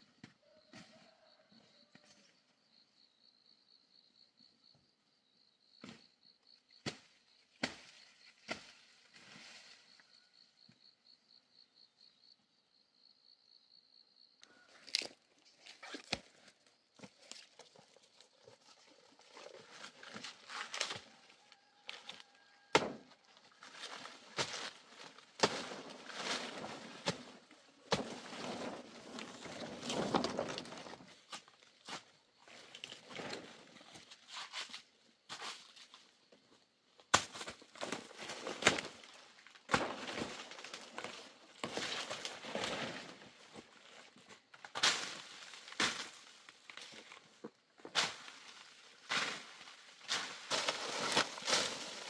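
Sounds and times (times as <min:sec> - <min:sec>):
rustling of leaves: 0:17.2 - 0:31.8, 0:37.5 - 0:52.0.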